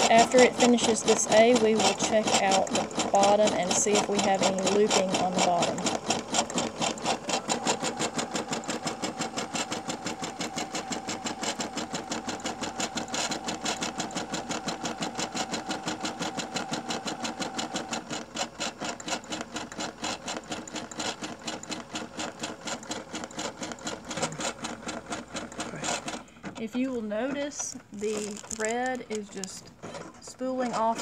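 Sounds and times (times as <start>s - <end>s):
embroidery machine stitching: 0.0s - 31.0s
machine whine: 0.0s - 31.0s.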